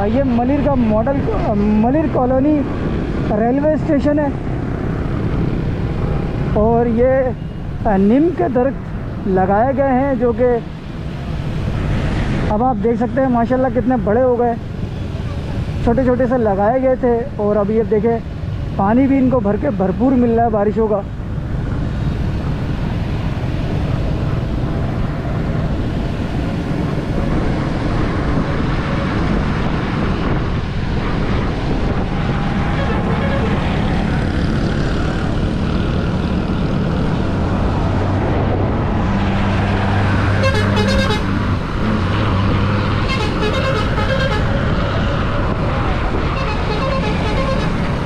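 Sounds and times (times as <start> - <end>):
road and wind noise: 0.0 - 48.0
vehicle horns tooting: 32.7 - 33.7, 40.4 - 41.4, 43.0 - 44.6, 46.3 - 48.0.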